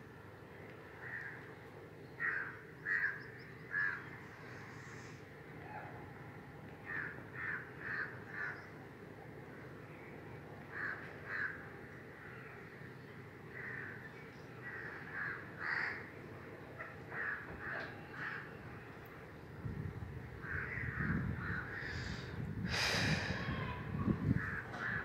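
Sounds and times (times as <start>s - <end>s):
outdoor background noise: 0.0s - 25.0s
bird cawing: 1.0s - 1.4s, 2.1s - 5.2s, 6.8s - 8.8s, 10.6s - 12.6s, 13.5s - 16.2s, 16.8s - 18.9s, 20.4s - 22.4s, 23.0s - 25.0s.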